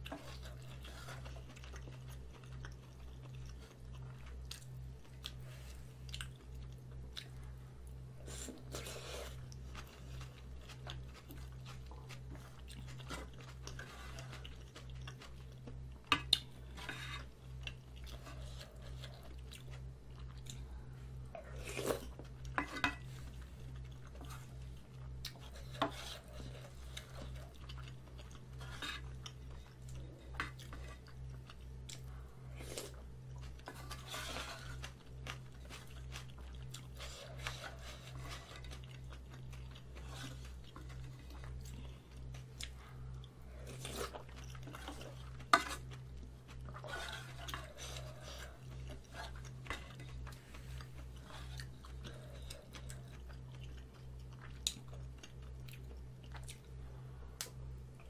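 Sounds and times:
chewing: 0.0 - 58.0
steady low hum: 0.0 - 58.0
wooden spoon scraping a metal pot: 16.8 - 17.3, 25.6 - 26.6, 28.6 - 29.1, 33.7 - 34.8, 45.5 - 45.9, 46.8 - 48.4.

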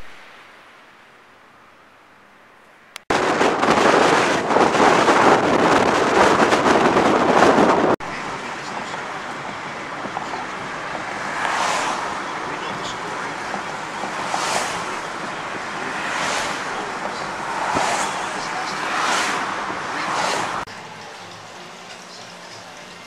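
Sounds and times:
road noise: 0.0 - 23.0
wind buffeting microphone: 3.1 - 20.7.

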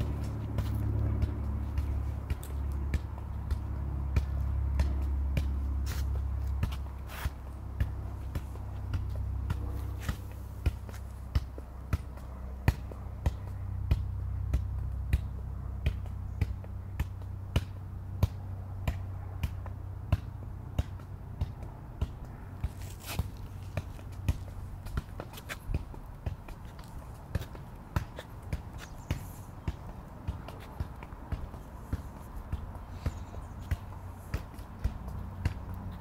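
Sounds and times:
ball taps on foot: 0.2 - 6.9.

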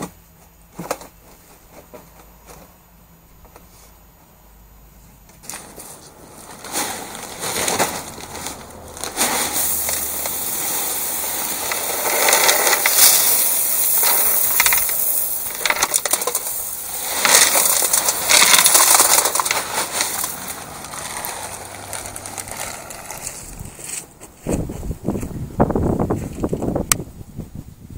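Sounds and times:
small stones pouring from a bag: 5.4 - 23.8.

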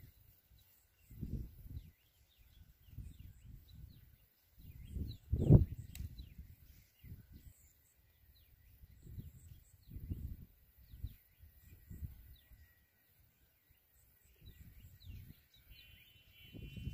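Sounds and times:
small birds chirping: 0.0 - 16.9.

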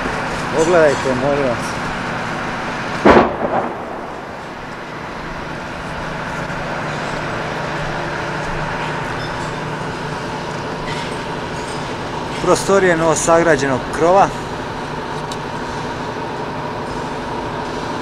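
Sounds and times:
steady rumbling: 0.0 - 8.7
loud explosion bang: 3.0 - 5.4.

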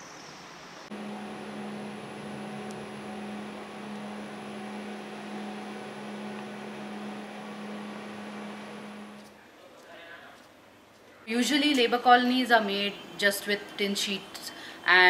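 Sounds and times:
faint high whine: 0.9 - 9.3
low electrical hum: 0.9 - 9.4.

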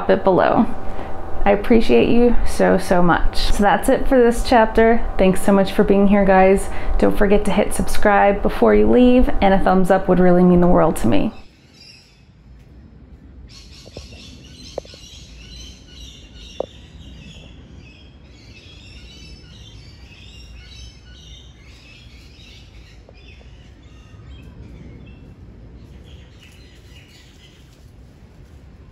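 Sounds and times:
low background rumble: 0.0 - 28.9
small birds chirping: 13.5 - 27.9.

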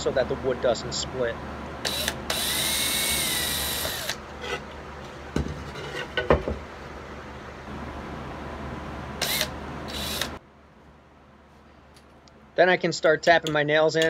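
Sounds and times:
cordless drill boring into wood: 1.8 - 4.2, 9.2 - 10.4.

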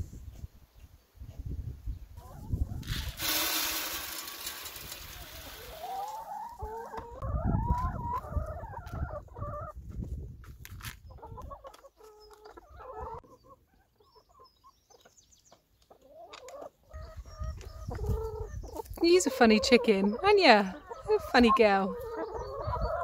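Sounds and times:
hens clucking and calling: 4.8 - 9.8, 11.1 - 23.0.

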